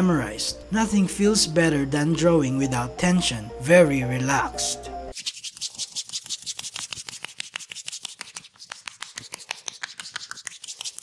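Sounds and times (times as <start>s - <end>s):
hands tapping on skin and hair: 6.3s - 11.0s.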